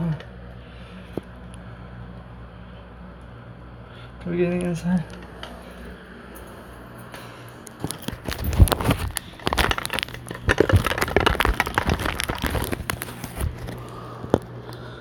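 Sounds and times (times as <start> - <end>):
plastic crinkling: 7.6 - 15.0.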